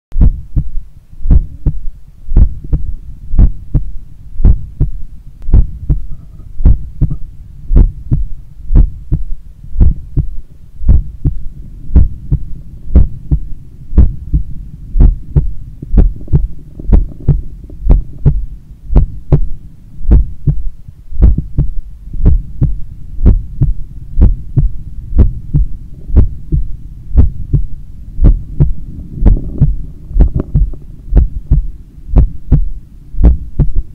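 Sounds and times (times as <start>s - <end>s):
heartbeat double thumps: 0.2s - 33.9s
low rumble: 0.2s - 33.9s.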